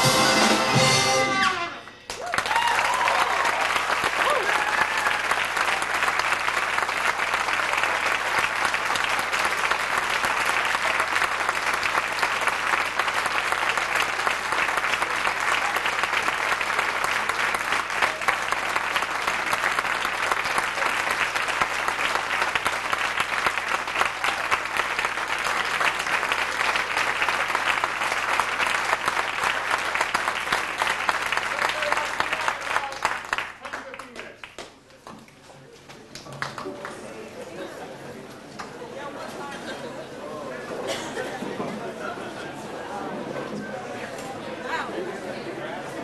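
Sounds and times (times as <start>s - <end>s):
audience applauding: 2.1s - 35.0s, 36.2s - 37.8s.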